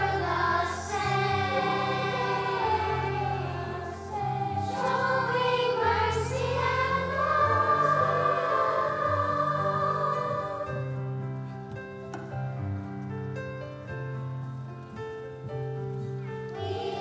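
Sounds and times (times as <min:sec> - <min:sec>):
children's choir singing: 0:00.0 - 0:11.2, 0:16.5 - 0:17.0
keyboard accompaniment: 0:00.0 - 0:17.0.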